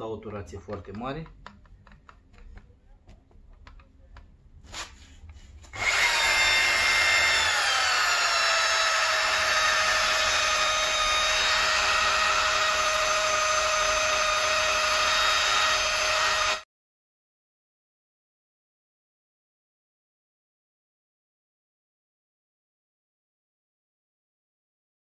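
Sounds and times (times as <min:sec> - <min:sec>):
electric polisher motor whine: 0:05.8 - 0:16.6.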